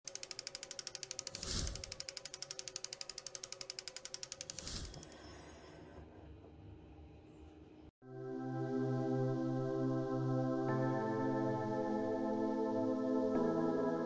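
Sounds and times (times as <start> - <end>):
ratchet-like gear clicking: 0.0 - 5.3.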